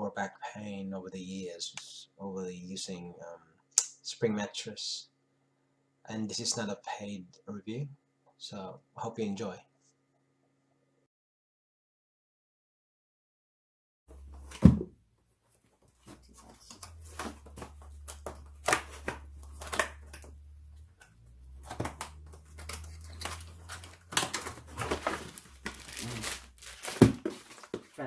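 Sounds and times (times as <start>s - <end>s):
cardboard flaps scraping: 15.5s - 28.0s
plastic wrap crinkling: 21.6s - 28.0s.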